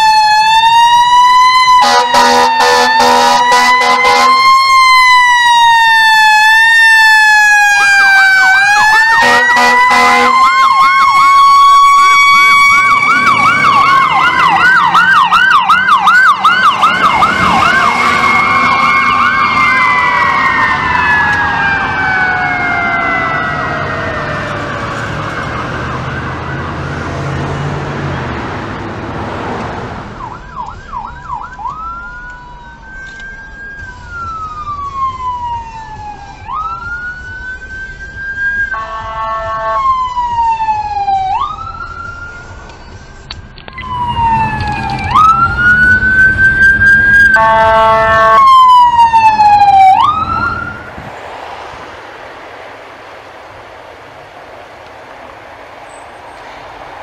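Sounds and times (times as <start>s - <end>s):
siren wailing: 0.0s - 27.8s, 30.0s - 52.4s
horn blasts: 1.8s - 4.4s, 9.2s - 10.5s, 38.7s - 39.9s, 47.3s - 48.5s.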